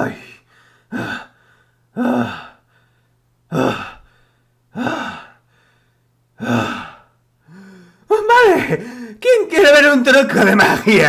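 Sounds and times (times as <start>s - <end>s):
man sighing breaths: 0.5s - 8.1s, 8.8s - 9.2s.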